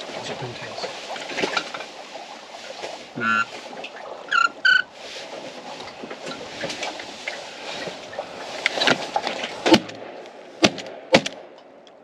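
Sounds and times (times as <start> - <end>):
small knocks and rustles: 0.3 - 3.0, 5.1 - 10.0.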